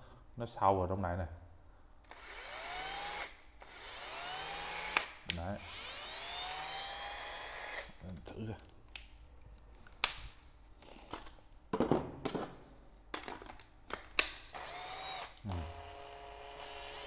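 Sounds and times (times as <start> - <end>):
impact driver motor whining: 2.1 - 7.9, 14.5 - 17.0.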